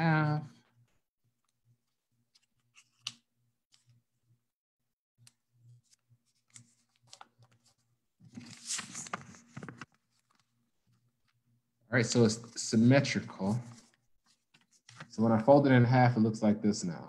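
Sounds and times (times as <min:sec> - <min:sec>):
paper rustling and crinkling: 0:05.7 - 0:10.6, 0:13.5 - 0:15.5.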